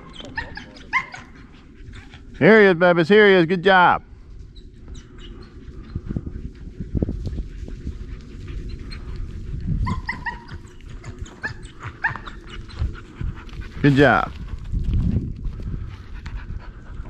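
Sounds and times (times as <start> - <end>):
dog whining: 0.0 - 2.2, 9.8 - 12.9
low rustling and thumping: 10.5 - 16.8.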